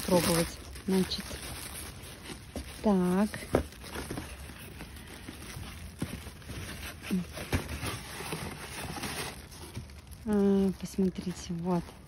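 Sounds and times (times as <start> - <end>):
cardboard and plastic wrap rustling: 0.0 - 12.0.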